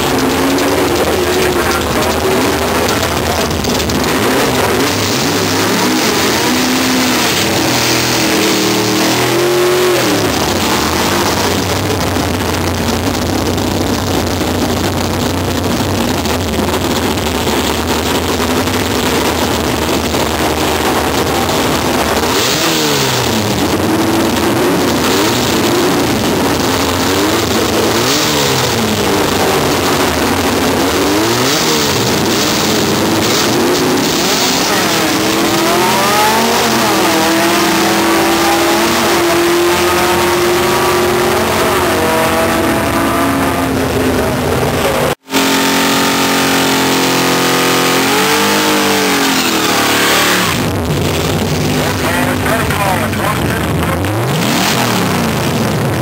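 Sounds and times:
drag car engines revving: 0.0 - 56.0.

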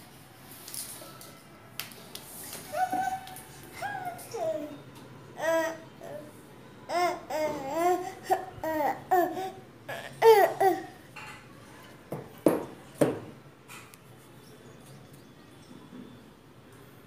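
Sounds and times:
toddler babbling: 2.7 - 4.8, 5.4 - 6.3, 6.9 - 11.1
toddler laughing: 2.7 - 4.8, 6.9 - 11.0.

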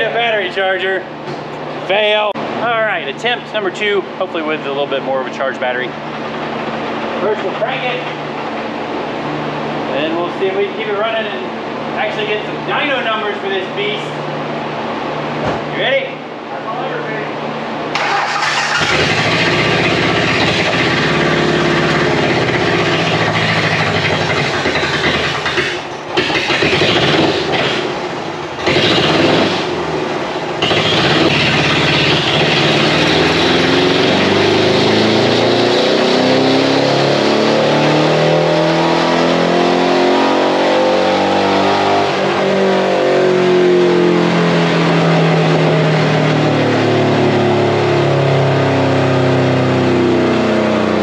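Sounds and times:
truck engine revving: 17.9 - 51.0.

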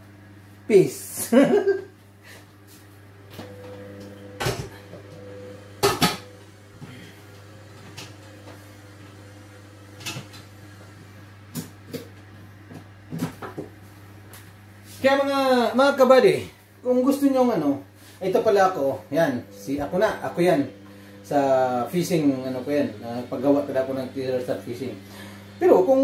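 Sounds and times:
steady low hum: 0.0 - 26.0
knocks and clunks in a kitchen: 4.3 - 5.2, 5.8 - 6.3, 11.5 - 13.8.

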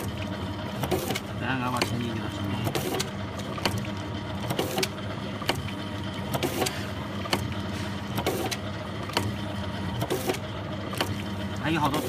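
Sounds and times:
machine motor hum: 0.0 - 12.0.

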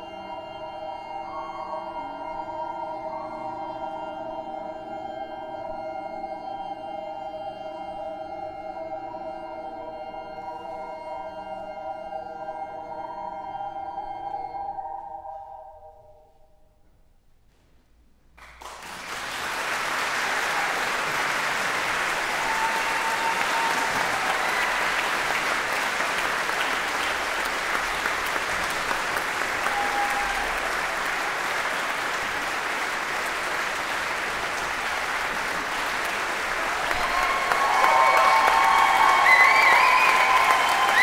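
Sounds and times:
audience applause: 18.4 - 41.0.

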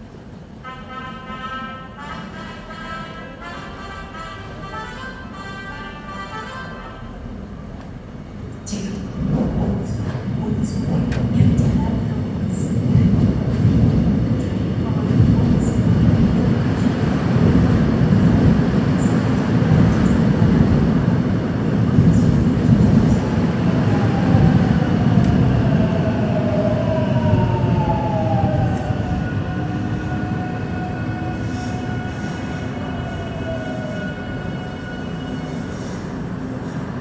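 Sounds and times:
train wheels rumbling on rail: 7.4 - 37.0.

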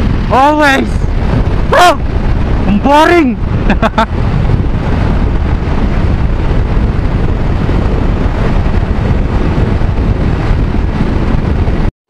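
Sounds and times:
wind rushing over microphone: 0.0 - 11.9.

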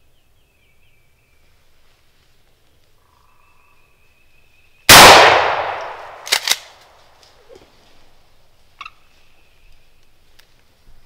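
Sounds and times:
shotgun blast: 4.9 - 6.5
sharp clicks: 5.0 - 6.9.

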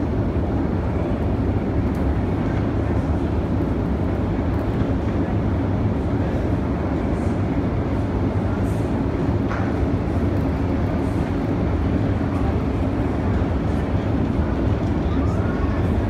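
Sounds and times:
escalator hum and rumble: 0.0 - 16.0.

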